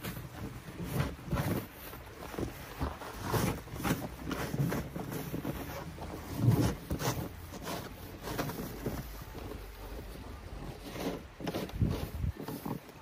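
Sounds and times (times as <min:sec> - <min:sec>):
snow pusher scraping snow: 0:00.0 - 0:13.0
wind rumble on microphone: 0:11.4 - 0:12.8.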